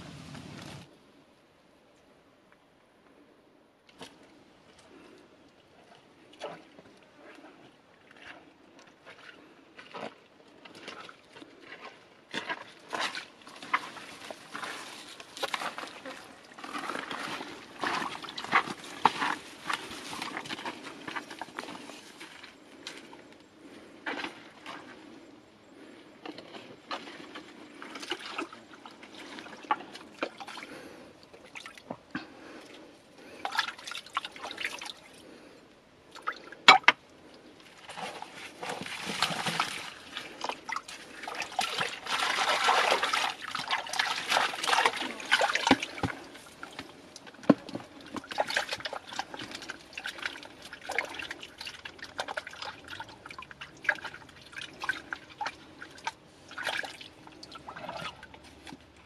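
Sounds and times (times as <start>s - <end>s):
water splashing and dripping: 37.8s - 47.3s, 48.0s - 58.8s.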